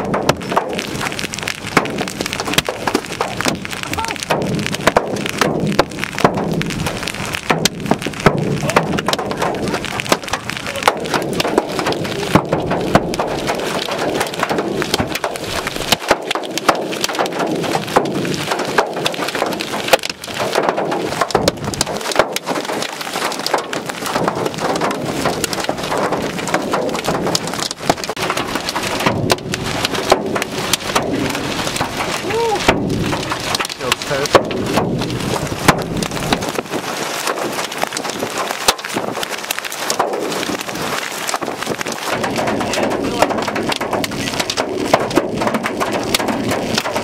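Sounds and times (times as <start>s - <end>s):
hailstones clattering: 0.0s - 47.0s
rain rushing: 0.0s - 47.0s.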